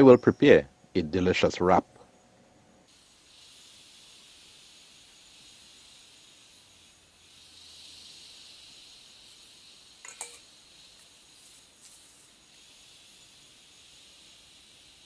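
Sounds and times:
faint high-pitched hiss: 0.0 - 15.0
crockery and utensils clinking: 10.0 - 10.4.

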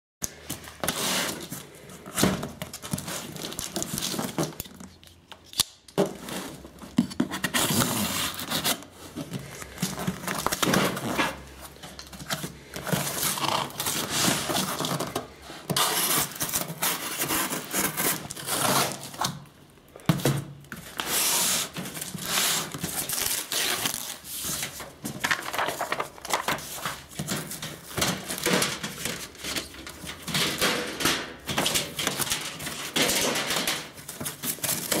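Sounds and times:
cardboard scraping and rustling: 6.0 - 19.4.

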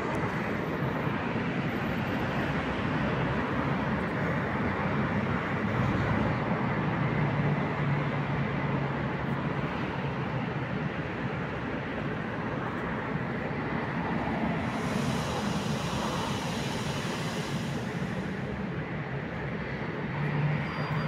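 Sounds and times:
electric locomotive humming: 10.8 - 21.0
high hiss: 14.6 - 18.6.

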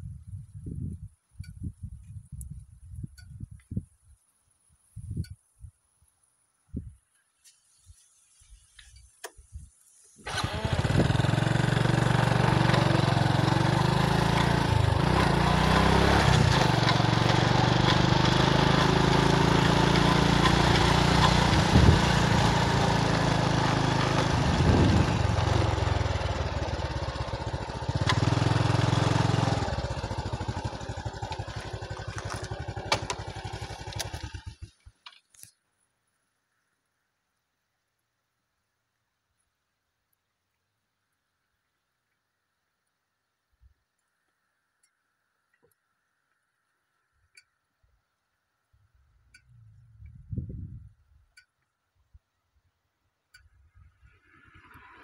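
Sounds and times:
small motorbike engine running: 10.2 - 35.0.

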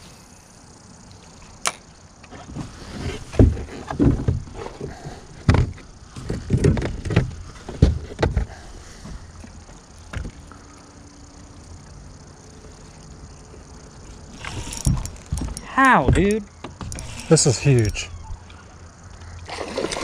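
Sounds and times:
low thumps and knocks on a boat: 3.3 - 10.4, 14.9 - 17.0.

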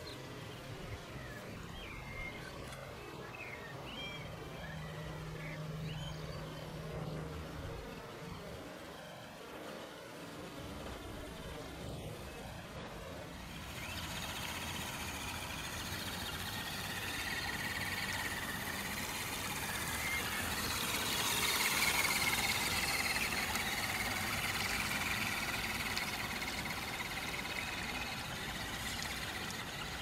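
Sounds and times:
toy truck motor whining: 13.5 - 30.0.

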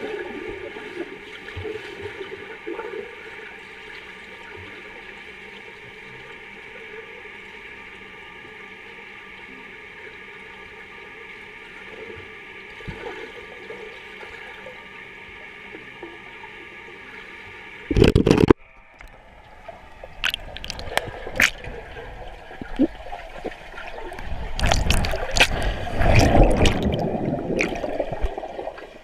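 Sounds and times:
steady underwater tones: 0.0 - 29.0
swimmers splashing and bubbles: 17.9 - 29.0.

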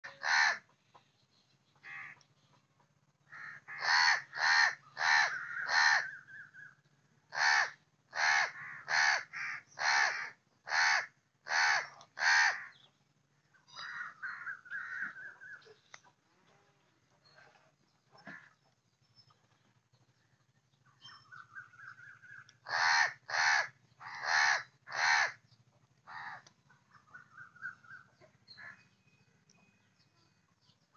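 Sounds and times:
crow cawing: 0.0 - 0.7, 3.3 - 6.4, 7.3 - 12.8, 13.8 - 15.4, 22.6 - 25.4, 26.1 - 26.5.

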